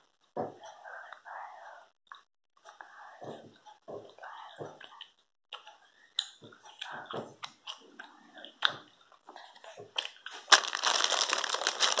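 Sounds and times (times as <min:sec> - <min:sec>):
child chewing with open mouth: 0:03.5 - 0:12.0.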